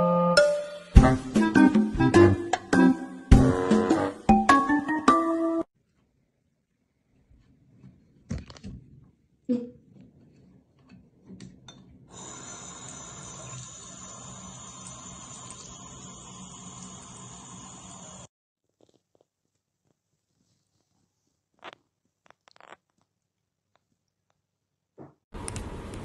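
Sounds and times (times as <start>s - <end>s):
faucet running into sink: 12.1s - 18.3s.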